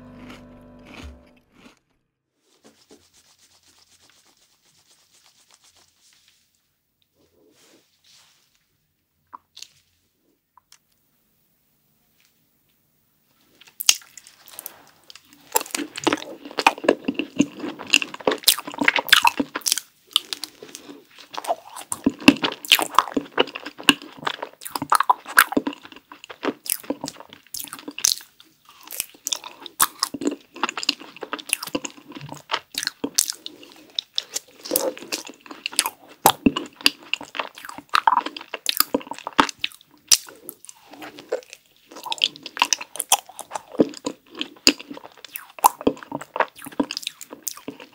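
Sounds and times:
chewing: 0.0 - 1.9, 13.6 - 47.9
crunching of frozen dessert: 0.0 - 1.9, 13.6 - 47.9.

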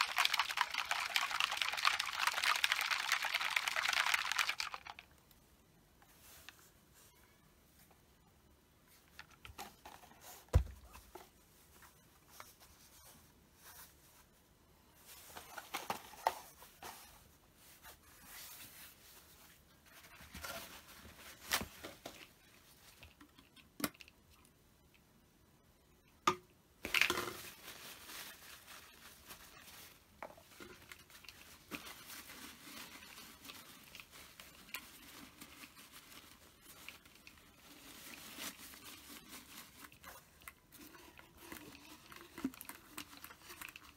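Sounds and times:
plastic crinkling: 0.0 - 5.4, 26.8 - 43.9.

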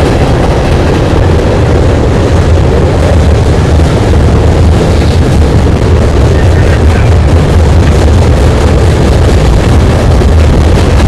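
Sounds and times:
freight train rumbling over trestle: 0.0 - 11.0.

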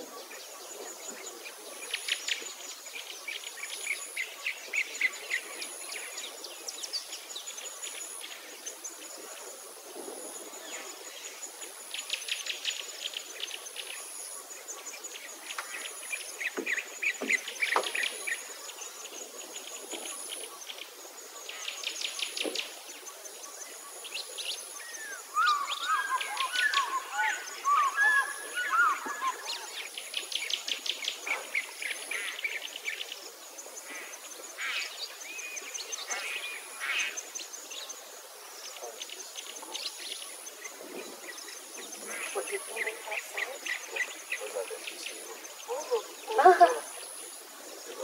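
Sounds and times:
birds singing rapid trills: 21.4 - 33.2
low wavering bird call: 25.4 - 29.7.

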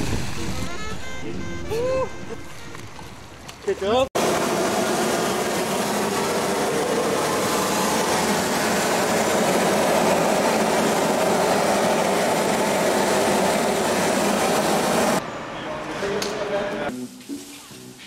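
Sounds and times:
concrete pump running: 4.2 - 15.2.

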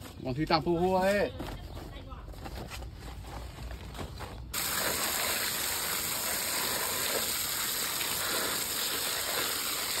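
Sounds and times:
water jet splashing on fish: 4.6 - 10.0.

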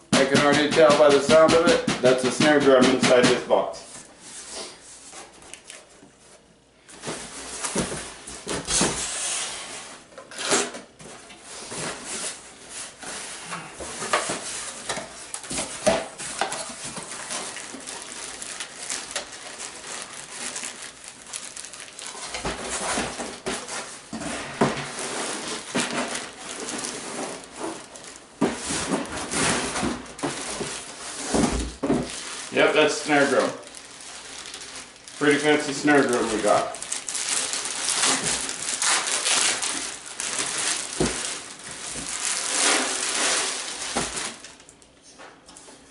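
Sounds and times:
cardboard rustling and scraping: 3.8 - 44.6
plastic wrap crinkling: 11.6 - 24.1, 24.8 - 44.9.

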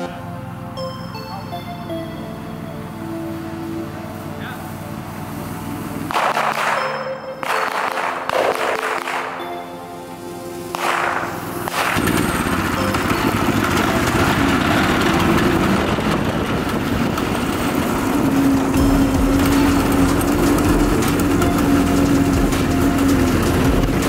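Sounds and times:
go-kart engine running: 0.0 - 9.8, 10.5 - 24.0
music: 0.0 - 16.1, 17.5 - 24.0.

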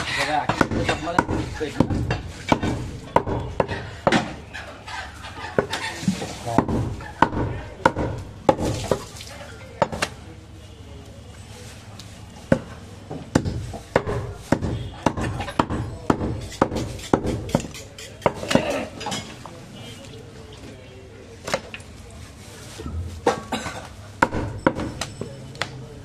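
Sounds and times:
cleaver chopping on wooden block: 0.5 - 4.4, 6.6 - 8.8, 13.3 - 18.8, 24.2 - 25.1.

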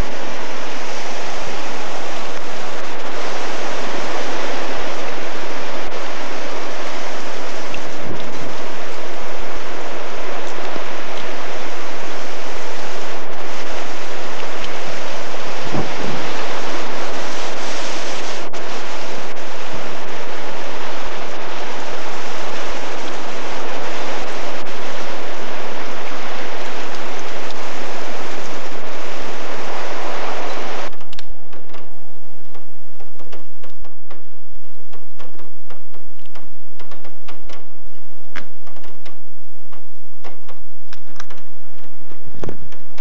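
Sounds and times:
floodwater rushing: 0.0 - 30.9
irregular clicks and ticks: 34.9 - 43.0.

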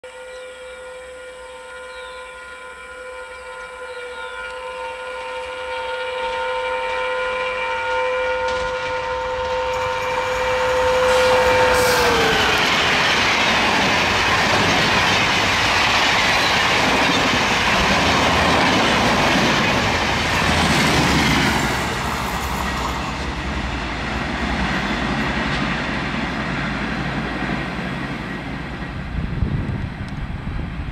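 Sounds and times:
train horn: 0.0 - 23.3
train coaches rushing by: 5.1 - 30.9
rail clatter: 8.4 - 30.3.

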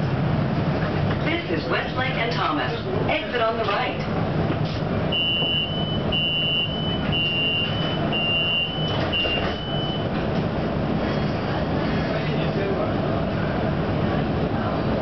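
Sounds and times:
low hum of streetcar: 0.0 - 15.0
high two-tone door beeps: 5.1 - 10.1.

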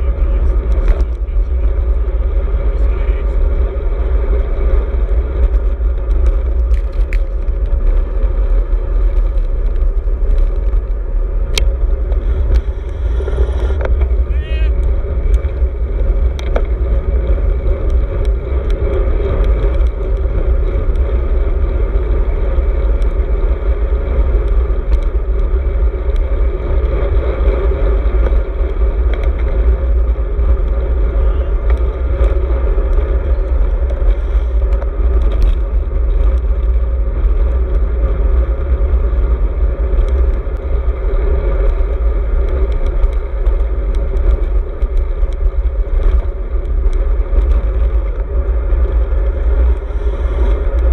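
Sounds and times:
bike tyre road noise: 0.0 - 50.9
wind buffeting microphone: 0.0 - 50.9.

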